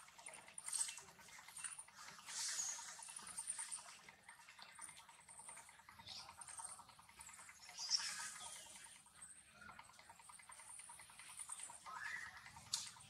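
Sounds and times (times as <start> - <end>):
small clicks: 0.0 - 13.0.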